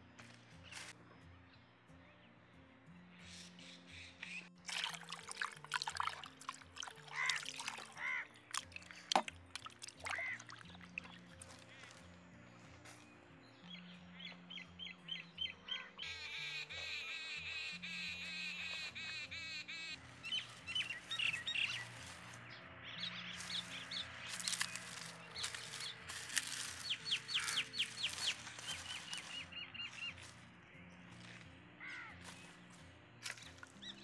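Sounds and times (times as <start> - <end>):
soft background music: 0.0 - 34.0
small birds chirping: 10.0 - 34.0
dry twigs snapping: 24.3 - 29.4.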